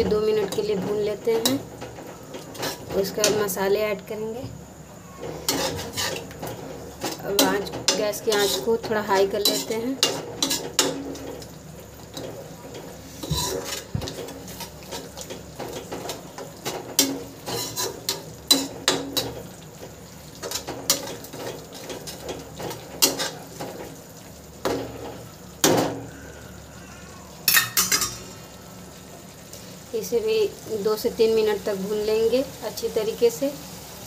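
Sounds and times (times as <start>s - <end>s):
masala frying: 0.0s - 34.0s
metal spatula scraping a metal pan: 0.5s - 3.4s, 5.1s - 11.4s, 12.1s - 19.5s, 20.4s - 23.8s.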